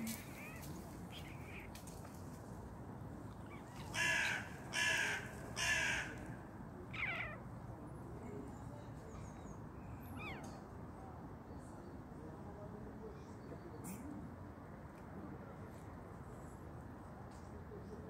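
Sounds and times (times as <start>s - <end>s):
crow cawing: 3.9s - 6.3s.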